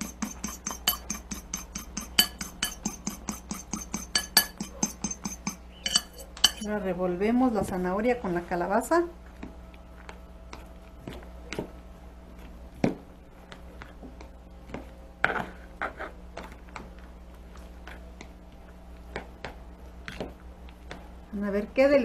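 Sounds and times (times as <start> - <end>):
fork scraping plastic bowl: 0.0 - 6.6.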